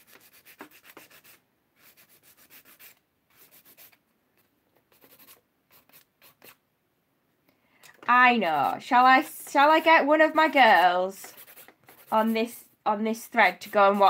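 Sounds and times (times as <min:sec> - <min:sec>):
nail file scraping: 0:00.0 - 0:06.6, 0:08.1 - 0:12.6, 0:13.2 - 0:14.0.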